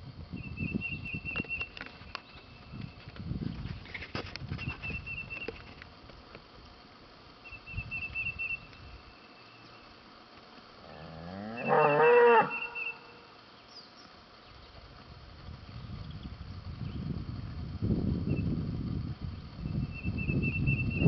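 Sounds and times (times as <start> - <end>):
cow mooing: 10.8 - 12.8
bird trilling: 11.5 - 13.2.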